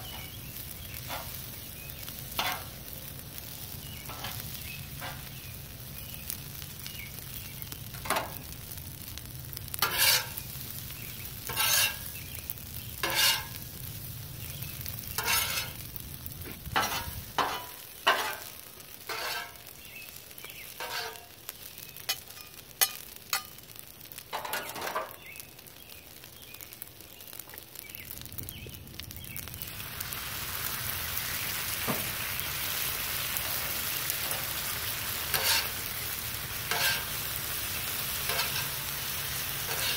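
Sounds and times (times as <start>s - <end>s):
food sizzling on griddle: 0.0s - 39.9s
metal tongs and spatula clacking: 2.4s - 2.7s, 15.2s - 15.8s, 16.8s - 18.5s, 19.1s - 19.6s, 20.8s - 21.3s, 22.1s - 23.6s, 24.3s - 25.2s, 35.3s - 35.7s, 36.7s - 37.1s, 38.3s - 38.8s, 39.7s - 39.9s.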